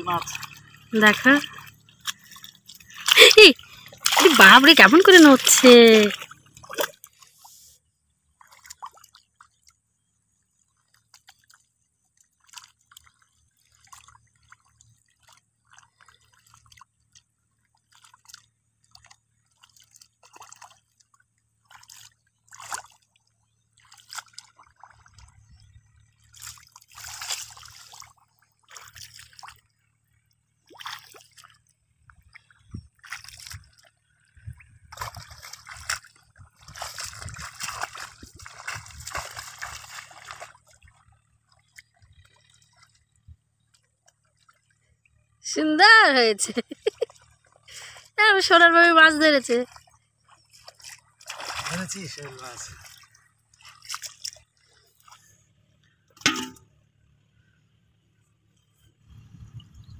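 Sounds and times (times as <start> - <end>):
muddy water sloshing: 0.0 - 59.9.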